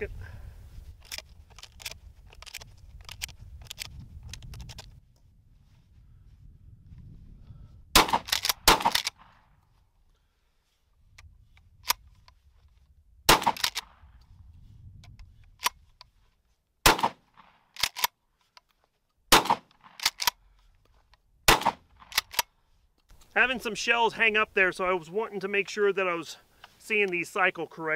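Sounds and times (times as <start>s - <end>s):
shotgun pump racking clack: 1.0s - 4.9s, 8.2s - 9.2s, 13.3s - 13.9s, 17.8s - 18.1s, 19.7s - 20.4s, 21.6s - 22.5s
shotgun shots: 8.0s - 9.4s, 13.3s - 14.0s, 16.8s - 17.6s, 19.3s - 20.2s, 21.5s - 22.4s.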